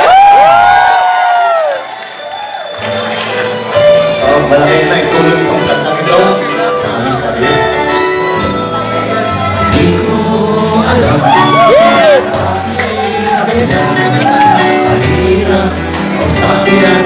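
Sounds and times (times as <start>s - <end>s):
live band playing: 2.4s - 17.0s
men singing: 4.1s - 17.0s.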